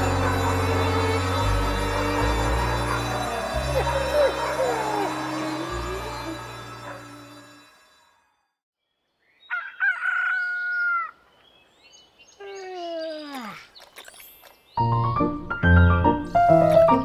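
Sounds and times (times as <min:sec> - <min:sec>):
music: 0:00.0 - 0:08.6, 0:14.8 - 0:17.0
rooster crowing: 0:09.5 - 0:11.2.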